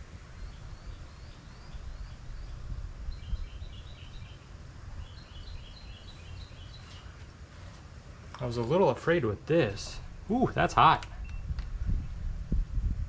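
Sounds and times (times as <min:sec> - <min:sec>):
low steady rumble: 0:00.0 - 0:13.0
bird chirping: 0:00.3 - 0:07.3.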